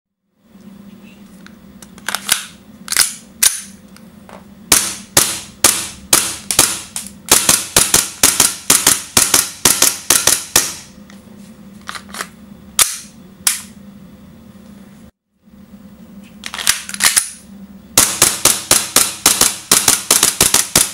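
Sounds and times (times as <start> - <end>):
airsoft pistol shots: 4.7 - 10.8.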